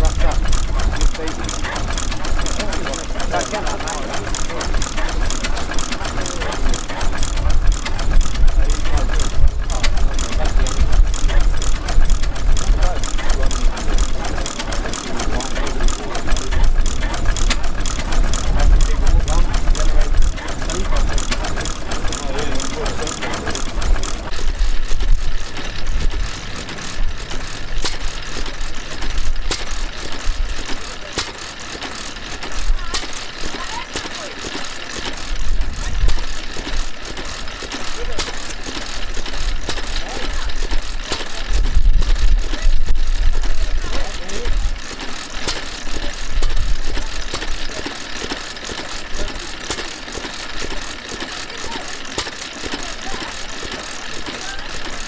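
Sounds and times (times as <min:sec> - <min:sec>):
stationary engine clattering: 0:00.0 - 0:55.0
valve gear clicking: 0:00.0 - 0:55.0.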